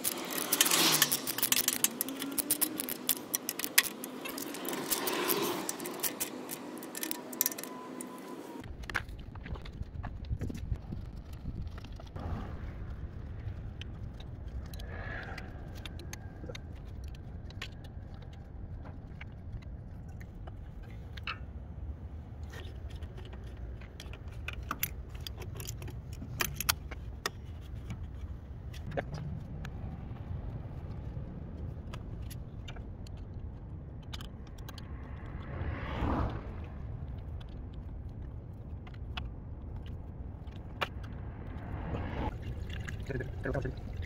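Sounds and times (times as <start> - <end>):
metal pliers clicking and clinking: 0.0 - 8.2
low rumble: 8.6 - 22.4, 28.1 - 44.0.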